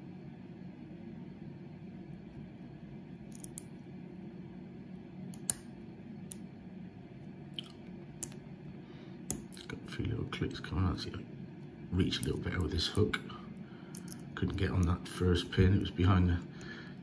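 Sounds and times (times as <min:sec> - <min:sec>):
steady low hum: 0:00.0 - 0:17.0
lock pick metallic clicks: 0:03.3 - 0:03.7, 0:05.3 - 0:05.6, 0:13.9 - 0:14.2.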